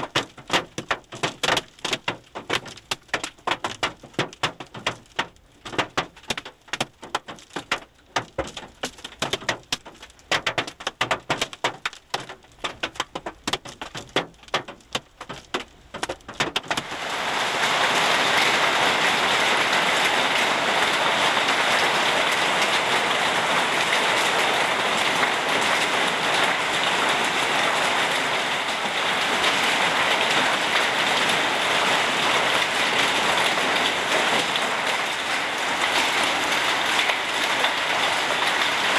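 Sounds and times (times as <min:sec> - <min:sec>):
hail striking a car roof: 0:00.0 - 0:38.9.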